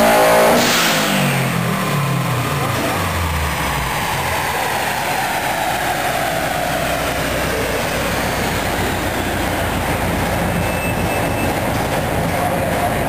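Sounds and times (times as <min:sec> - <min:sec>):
dyno roller rumble: 0:00.0 - 0:13.0
spinning wheels whine: 0:01.2 - 0:13.0.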